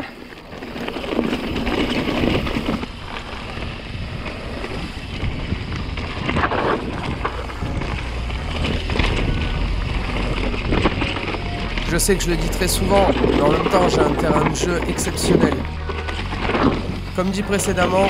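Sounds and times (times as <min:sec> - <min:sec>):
wind on microphone: 0:00.0 - 0:11.9
bike clatter: 0:00.0 - 0:18.0
bike tyres over gravel: 0:00.0 - 0:18.0.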